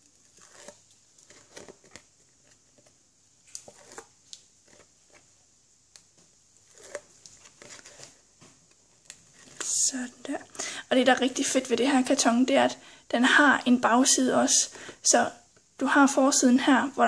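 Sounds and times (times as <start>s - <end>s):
paper rustling: 0.0s - 5.3s, 6.6s - 9.8s.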